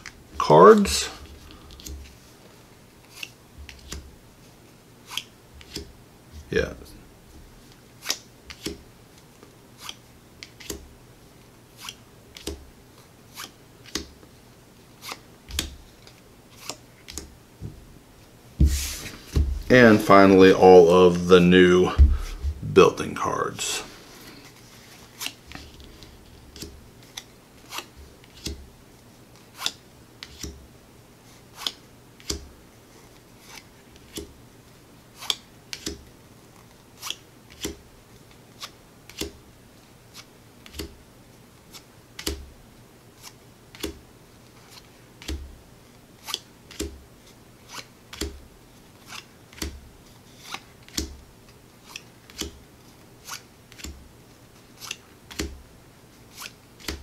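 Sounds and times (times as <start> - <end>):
cards snapping onto stack: 29.6 - 30.6, 42.2 - 42.4, 51.9 - 52.6.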